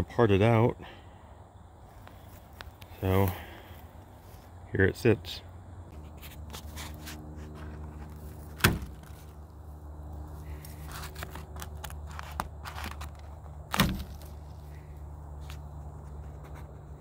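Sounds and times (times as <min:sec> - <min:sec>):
steady low hum: 0:00.0 - 0:17.0
footsteps on dry grass: 0:01.8 - 0:04.6, 0:05.9 - 0:17.0
handling tarp twine: 0:10.3 - 0:15.6.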